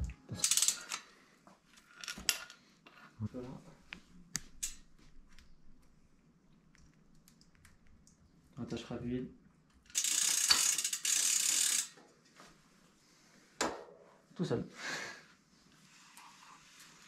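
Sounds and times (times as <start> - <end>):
bicycle chain rattling: 0.0 - 1.0, 9.9 - 12.0.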